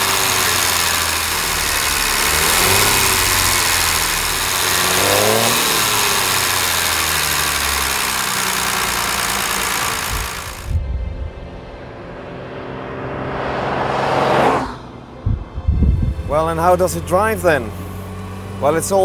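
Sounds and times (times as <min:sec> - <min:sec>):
car engine running and revving: 0:00.0 - 0:19.0.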